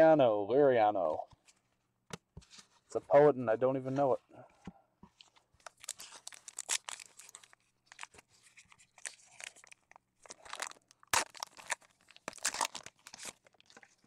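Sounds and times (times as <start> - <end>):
foil wrapper tearing and crinkling: 5.6 - 14.0.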